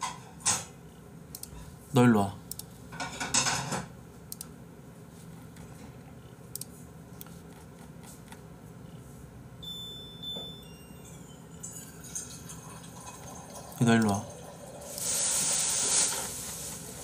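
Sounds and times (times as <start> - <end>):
thin high tone: 9.6 - 12.7.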